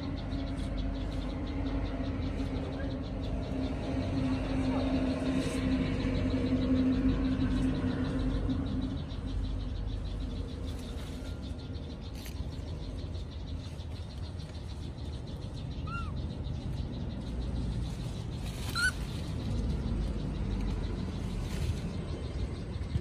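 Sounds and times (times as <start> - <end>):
low outdoor rumble: 0.0 - 23.0
high-pitched calls: 18.7 - 19.1.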